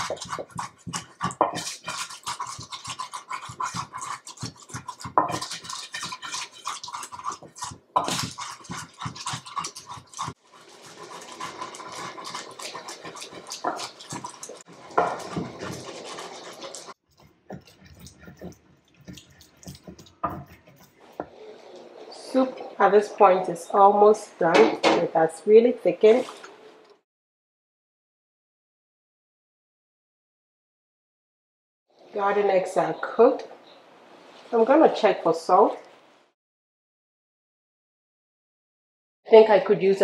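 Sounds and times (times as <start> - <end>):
grinding ingredients in a bowl: 0.0 - 21.6.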